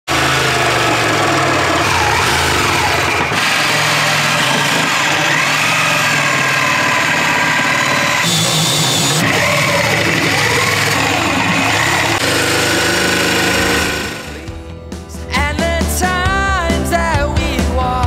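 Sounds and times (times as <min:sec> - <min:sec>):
reciprocating saw cutting wood: 0:00.0 - 0:14.5.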